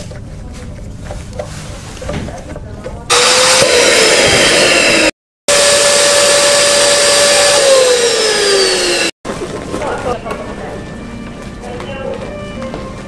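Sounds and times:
balloon inflator motor humming: 0:03.1 - 0:09.2.

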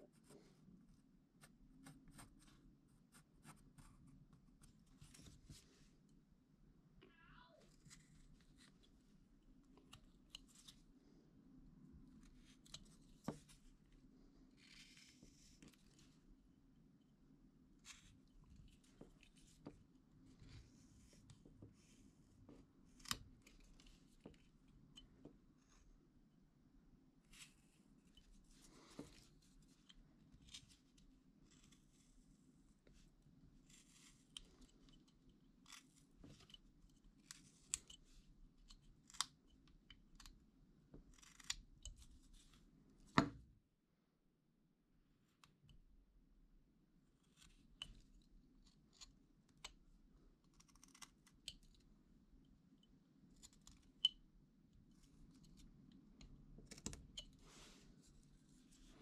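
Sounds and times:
knife carving wood: 0:14.5 - 0:16.0, 0:22.8 - 0:25.1, 0:27.3 - 0:32.3, 0:32.9 - 0:43.4, 0:47.2 - 0:49.8, 0:50.4 - 0:51.9, 0:54.9 - 0:57.4.

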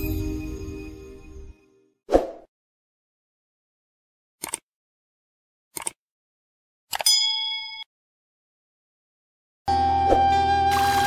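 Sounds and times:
notification bell ding: 0:07.1 - 0:07.9.

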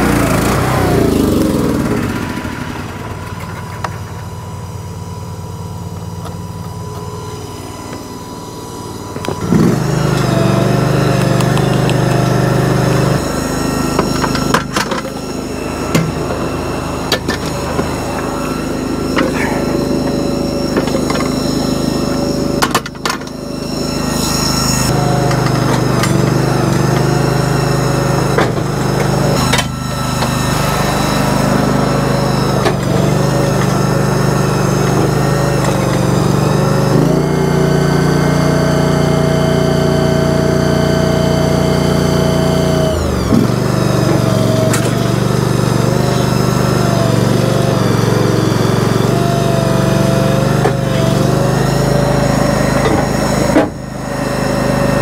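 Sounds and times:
engine running with whine: 0:00.0 - 0:55.0.

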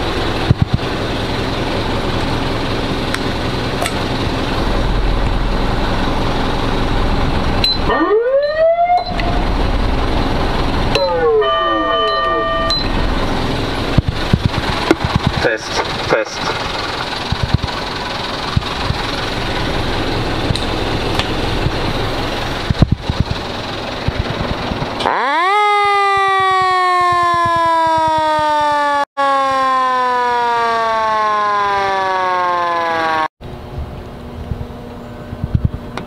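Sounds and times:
steady rushing noise: 0:00.0 - 0:07.7, 0:09.2 - 0:11.0, 0:12.7 - 0:25.0
motor siren wailing: 0:02.4 - 0:23.2, 0:24.0 - 0:35.8.

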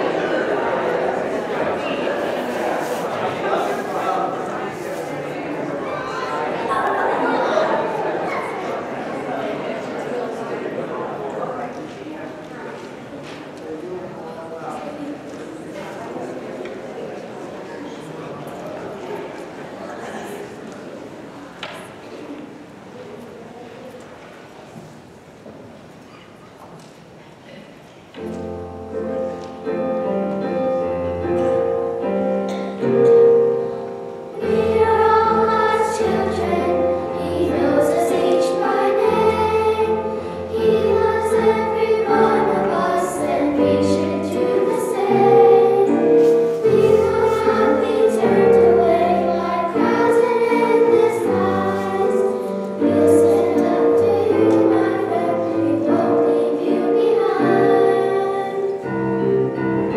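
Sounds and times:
group of voices singing: 0:34.4 - 0:58.9.

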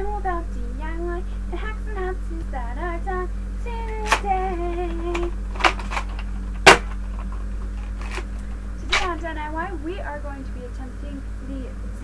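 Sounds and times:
girl humming: 0:00.0 - 0:05.4.

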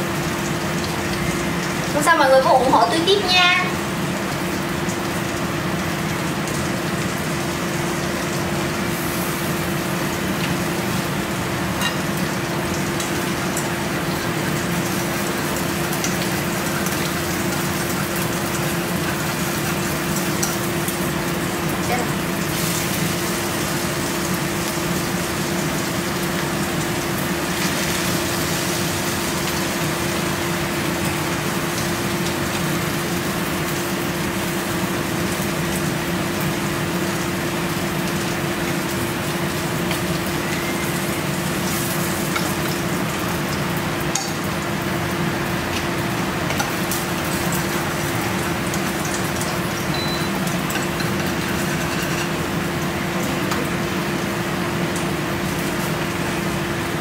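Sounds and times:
range hood fan humming: 0:00.0 - 0:57.0.

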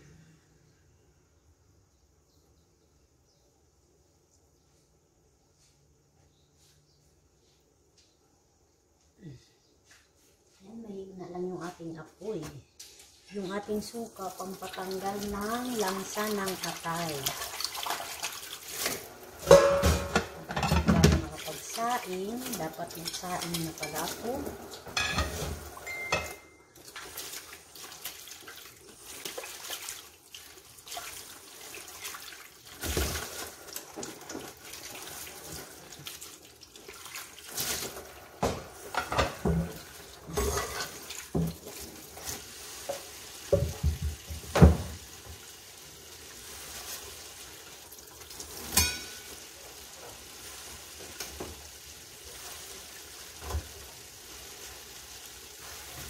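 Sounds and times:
tap water running into pot: 0:13.8 - 0:56.0
pot knocking and clattering: 0:19.4 - 0:21.5, 0:24.8 - 0:26.4, 0:42.9 - 0:45.0, 0:48.6 - 0:49.4.

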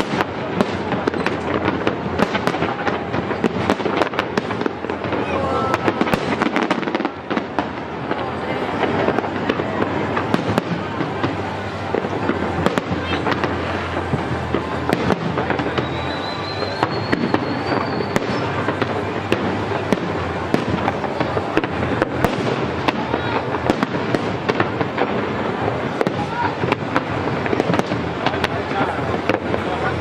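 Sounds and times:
fireworks bursting and crackling: 0:00.0 - 0:30.0
rising high whistle: 0:15.7 - 0:18.5.

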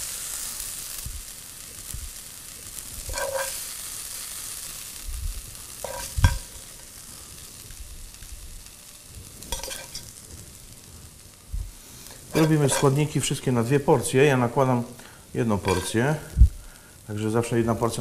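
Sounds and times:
rice sizzling in a pan: 0:00.0 - 0:18.0
metal spoon scraping pan: 0:03.0 - 0:03.7, 0:05.8 - 0:06.8, 0:09.4 - 0:10.2, 0:12.0 - 0:13.1, 0:15.6 - 0:16.0.

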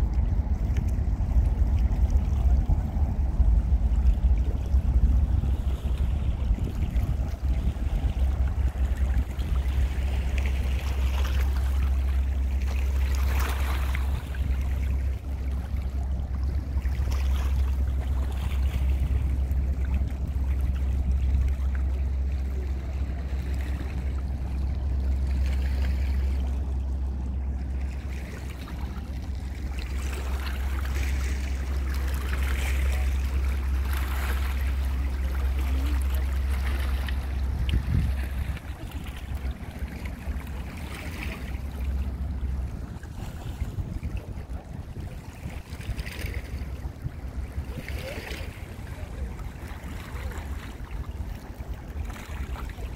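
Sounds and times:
steady low rumble: 0:00.0 - 0:52.9
water lapping against stones: 0:27.6 - 0:52.9.

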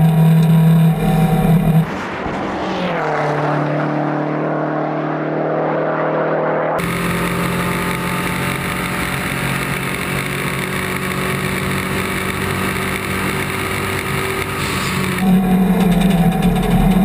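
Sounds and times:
car engine running at speed: 0:00.0 - 0:17.0
road noise: 0:00.0 - 0:17.0.

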